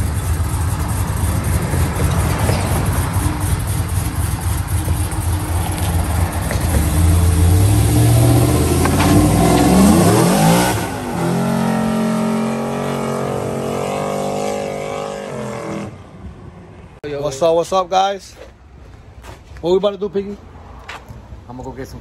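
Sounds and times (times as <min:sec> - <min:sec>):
pickup truck engine revving: 0:00.0 - 0:16.0.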